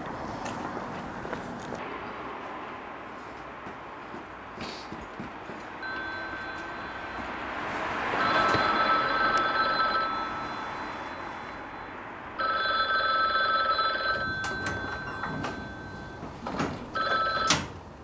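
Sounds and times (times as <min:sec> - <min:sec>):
payphone ringing: 0:05.8 - 0:07.3, 0:08.1 - 0:17.7.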